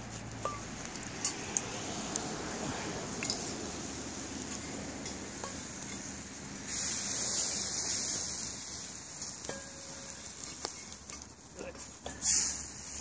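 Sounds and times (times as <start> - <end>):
oil sizzling in a pot: 3.2 - 11.1.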